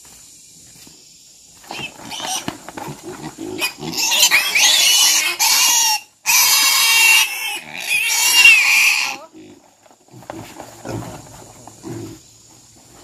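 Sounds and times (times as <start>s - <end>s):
pig squealing: 1.7s - 9.4s.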